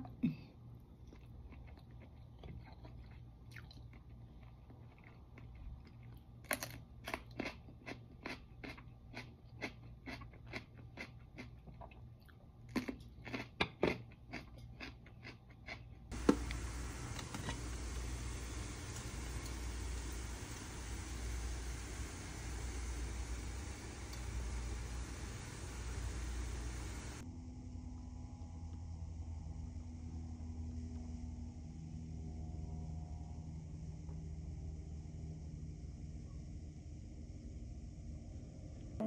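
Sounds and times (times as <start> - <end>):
person chewing: 1.0 - 16.2
steady hiss: 16.1 - 27.2.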